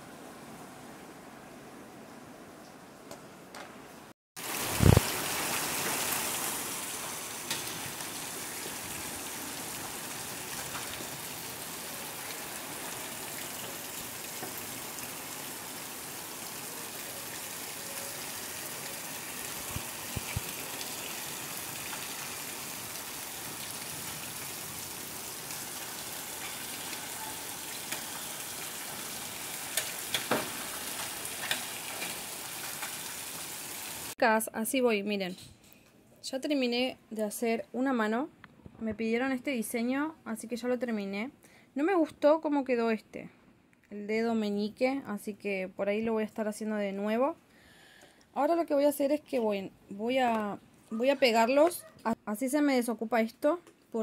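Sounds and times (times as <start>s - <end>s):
heavy rain pouring: 4.4s - 34.2s.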